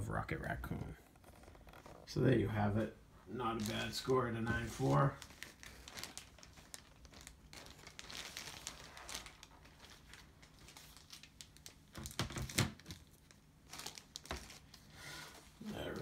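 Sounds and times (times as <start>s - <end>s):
packaging rustling and crinkling: 3.4s - 16.0s.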